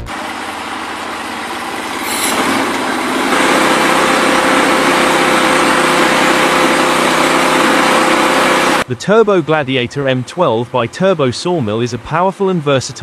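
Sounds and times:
sawmill engine running: 0.0 - 13.0
band blade sawing log: 1.4 - 8.8.

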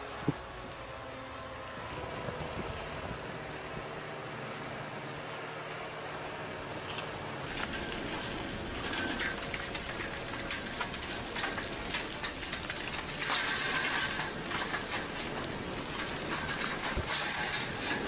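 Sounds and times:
lava crust cracking and clinking: 6.9 - 18.0.

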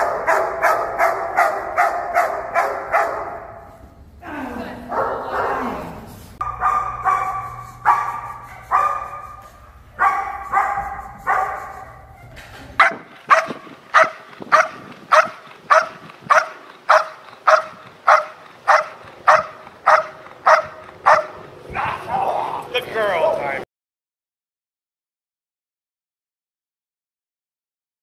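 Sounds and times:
second dog barking rhythmically: 0.0 - 3.5, 6.4 - 9.2, 10.0 - 11.7, 12.8 - 21.5
dog barking: 0.0 - 3.7, 4.9 - 5.8, 6.4 - 9.4, 10.0 - 21.5
low background hum: 0.0 - 23.6.

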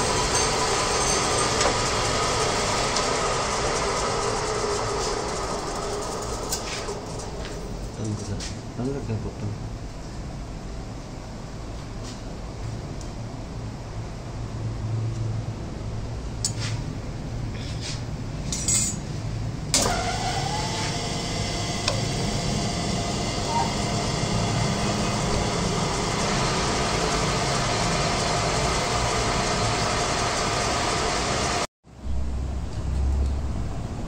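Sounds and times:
metal lathe whine and hum: 0.0 - 7.6, 19.8 - 31.7.

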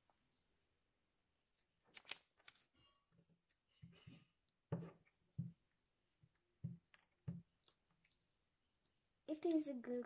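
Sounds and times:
paper rustling and crinkling: 1.7 - 2.9.

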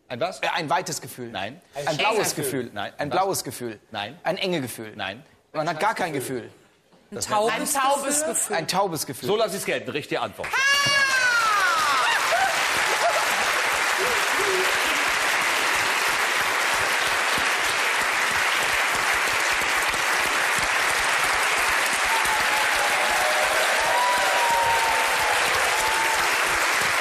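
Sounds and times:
audience applauding: 10.4 - 27.0.

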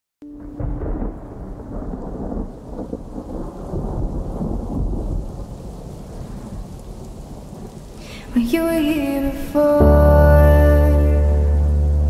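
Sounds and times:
low rumble of thunder: 0.2 - 8.8
heavy rain: 0.2 - 12.0.

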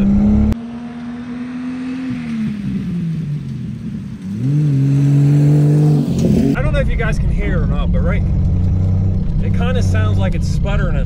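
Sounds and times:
car engine under throttle: 0.0 - 11.0.

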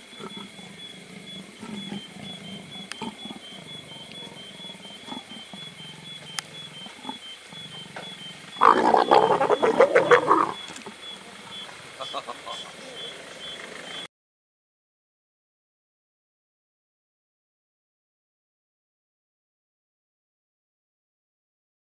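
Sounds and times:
leopard snarling and growling: 0.0 - 14.0.

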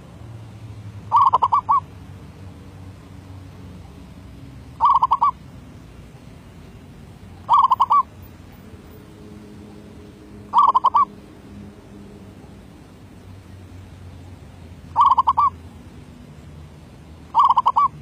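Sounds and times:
dove cooing: 1.1 - 1.9, 4.8 - 5.4, 7.4 - 8.1, 10.4 - 11.2, 15.0 - 15.6, 17.4 - 18.0.

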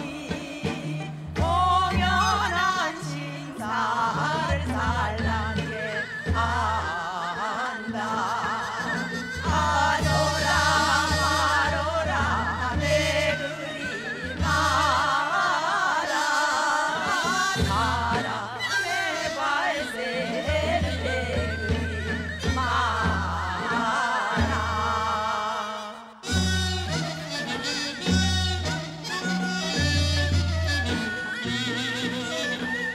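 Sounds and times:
recorded accompaniment with bass: 0.0 - 6.8
women singing with vibrato: 0.0 - 26.4.

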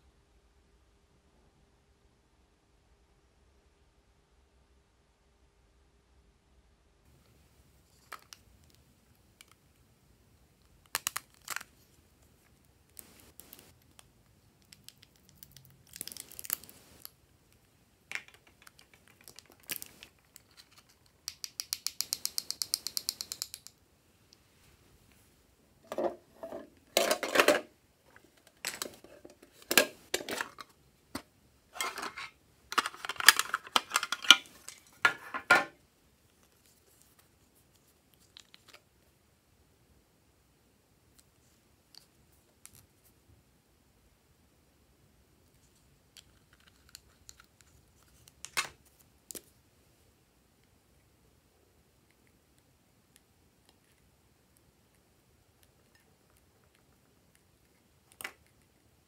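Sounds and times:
glue pen clicking and scraping: 18.6 - 23.8
plastic containers handled: 25.8 - 35.8.

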